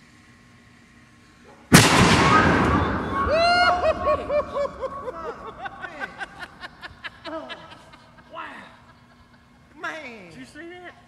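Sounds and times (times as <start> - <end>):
cannon firing boom: 1.7 - 5.5
man laughing: 3.6 - 9.5.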